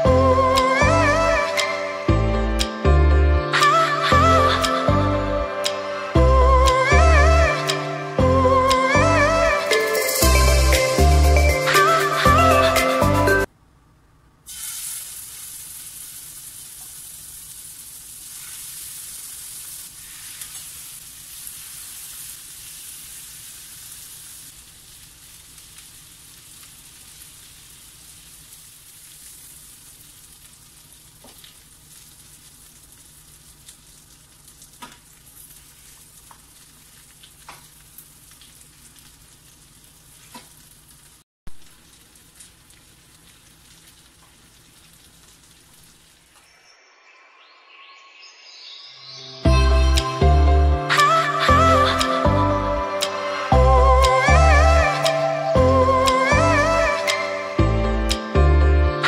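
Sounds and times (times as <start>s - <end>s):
meat sizzling in a frying pan: 14.5s - 46.4s.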